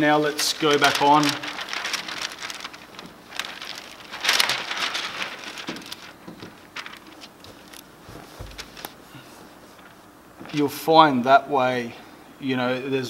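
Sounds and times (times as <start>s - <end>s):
film swishing: 0.0s - 10.8s
wet film crinkling and rustling: 0.0s - 10.9s.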